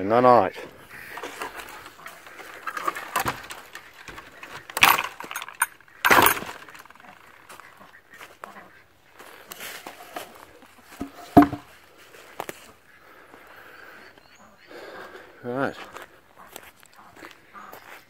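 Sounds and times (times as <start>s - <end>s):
wire mesh rattling: 0.9s - 7.3s
metal gate latch clanking: 2.7s - 7.0s.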